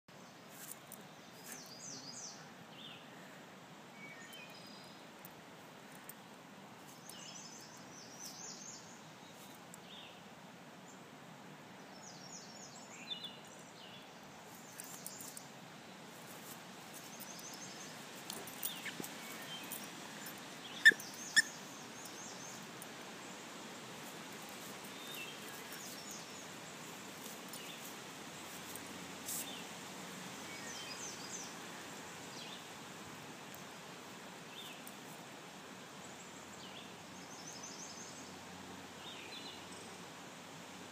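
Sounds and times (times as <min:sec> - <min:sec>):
outdoor hiss: 0:00.1 - 0:40.9
birds chirping: 0:17.0 - 0:23.5
squeaky rubber balls squeaking: 0:20.8 - 0:21.5.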